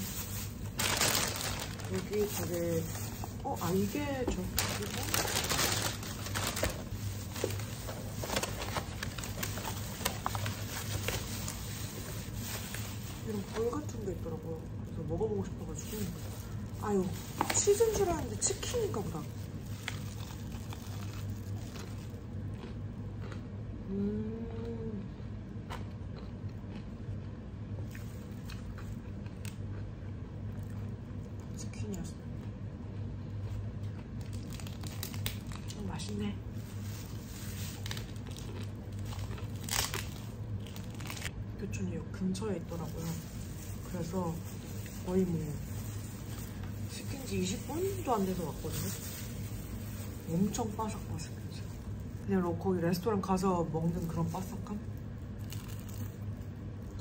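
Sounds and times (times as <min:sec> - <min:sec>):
food packaging crinkling: 0:00.0 - 0:23.4, 0:33.4 - 0:41.4, 0:42.3 - 0:57.0
steady low hum: 0:00.0 - 0:57.0
biting and chewing crispy chicken: 0:19.5 - 0:23.6, 0:25.6 - 0:31.6, 0:32.4 - 0:35.8, 0:36.7 - 0:41.4, 0:54.9 - 0:57.0
person humming: 0:23.9 - 0:25.0.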